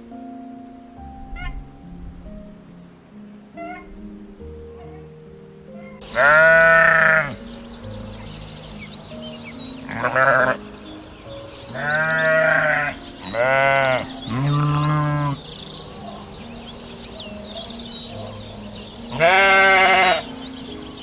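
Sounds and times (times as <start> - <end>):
low background notes: 0.0 - 21.0
farm animal bleating: 5.8 - 7.4, 9.9 - 10.6, 11.7 - 15.4, 19.1 - 20.3.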